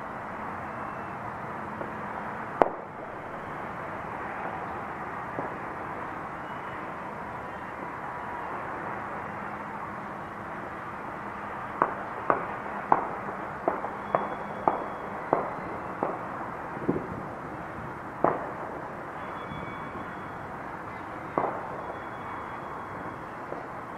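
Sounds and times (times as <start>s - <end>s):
fireworks bangs: 4.2s - 6.2s, 11.7s - 20.2s, 20.8s - 23.9s.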